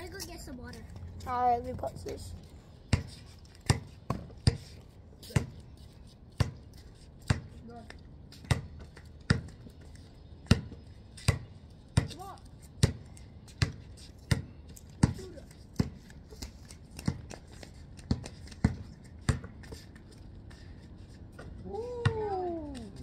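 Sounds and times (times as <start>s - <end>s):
basketball bouncing on concrete: 2.8s - 5.6s, 6.3s - 6.6s, 7.2s - 7.6s, 8.4s - 9.8s, 10.4s - 16.1s, 16.9s - 19.7s.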